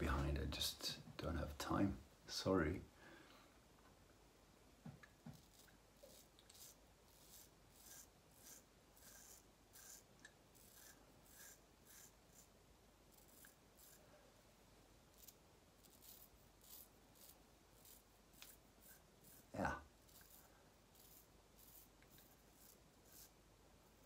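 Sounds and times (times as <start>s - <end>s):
razor scraping stubble: 5.3s - 12.5s, 13.1s - 14.0s, 15.1s - 23.4s.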